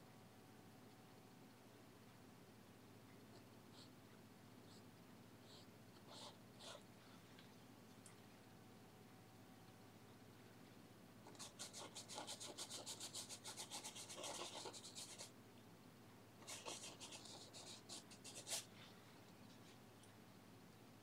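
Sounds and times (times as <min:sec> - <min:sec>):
paintbrush scrubbing canvas: 0:11.3 - 0:15.3, 0:16.4 - 0:18.7.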